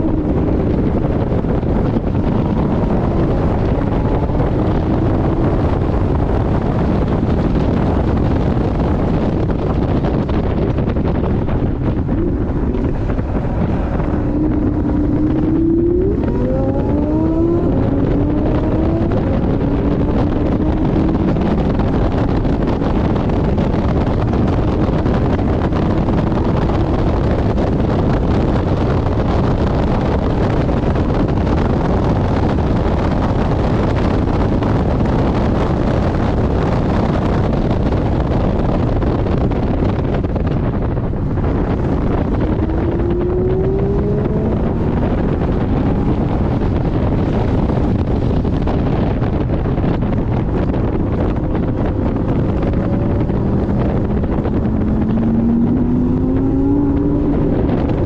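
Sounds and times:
road roar: 0.0 - 58.0
wind buffeting on microphone: 0.0 - 58.0
sports car engine revving: 9.5 - 29.5, 40.9 - 49.5, 50.3 - 58.0.

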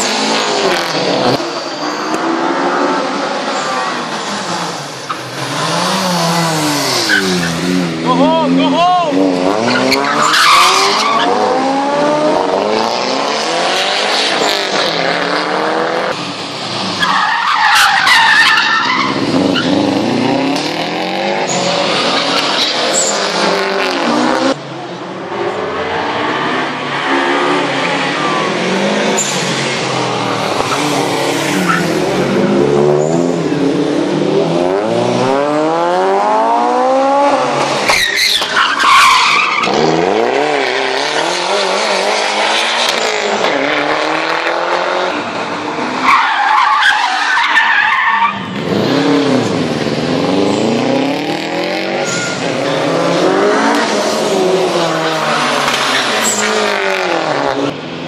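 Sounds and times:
car engines revving hard: 0.0 - 58.0
tyres squealing: 37.8 - 39.8.

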